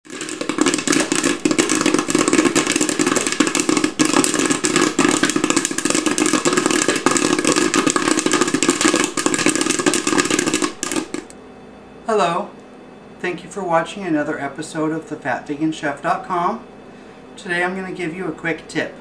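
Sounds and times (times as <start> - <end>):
popcorn kernels popping: 0.0 - 11.4
popcorn popper humming: 0.0 - 11.4.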